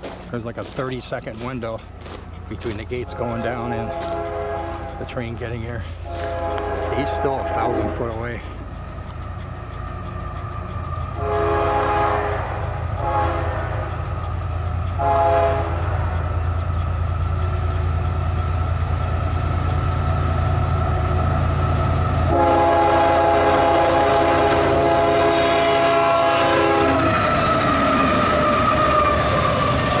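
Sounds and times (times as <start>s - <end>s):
diesel engine rumble: 0.0s - 30.0s
train wheels on rail: 0.0s - 30.0s
locomotive air horn blasts: 2.6s - 8.2s, 11.2s - 13.9s, 15.0s - 16.3s, 22.3s - 27.2s.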